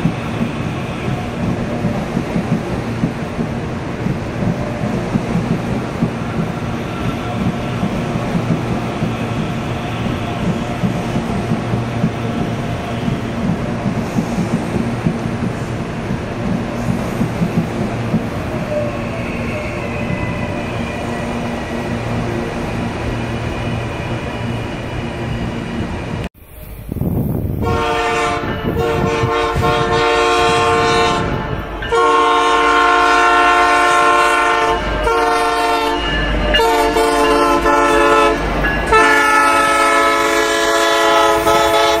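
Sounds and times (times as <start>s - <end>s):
train rumbling with high whine: 0.0s - 42.0s
multi-tone train horn blasts: 27.6s - 42.0s.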